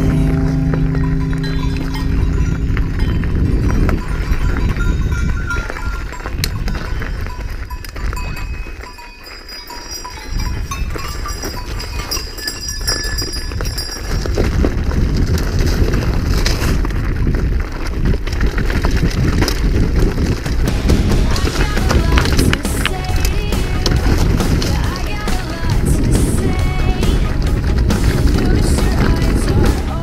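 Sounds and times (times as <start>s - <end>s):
wind rumble on microphone: 0.0s - 9.0s, 10.1s - 30.0s
livestock bells ringing: 0.0s - 14.6s.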